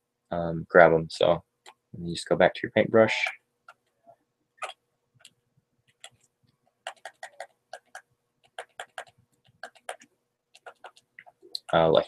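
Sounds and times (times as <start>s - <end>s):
computer mouse clicking: 5.2s - 6.2s.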